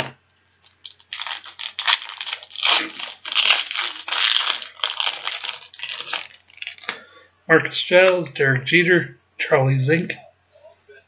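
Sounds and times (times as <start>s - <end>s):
card pack wrapper crinkling and tearing: 0.7s - 7.0s.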